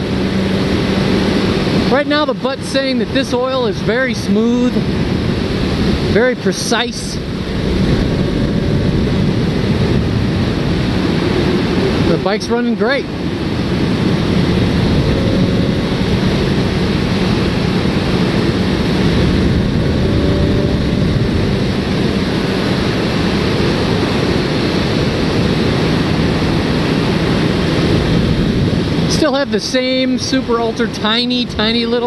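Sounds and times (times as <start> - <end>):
wind rushing: 0.0 - 30.2
motorcycle engine drone: 0.0 - 32.0.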